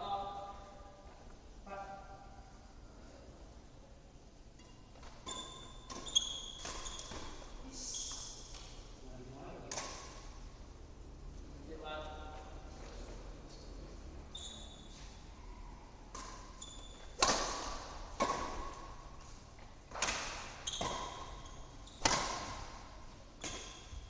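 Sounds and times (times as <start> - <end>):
badminton rackets hitting shuttlecock: 4.6 - 8.8, 9.6 - 10.4, 16.0 - 24.0.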